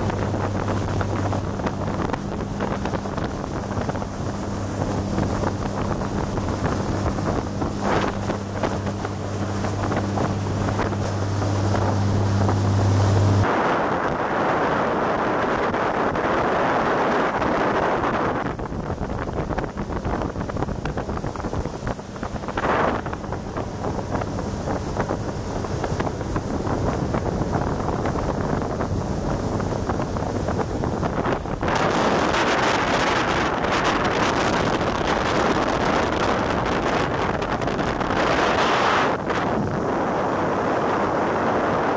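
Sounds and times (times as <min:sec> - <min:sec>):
spray slapping the hull: 0:00.0 - 0:13.4
boat diesel engine humming: 0:00.0 - 0:41.9
rushing water: 0:00.0 - 0:41.9
wind buffeting microphone: 0:00.0 - 0:41.9.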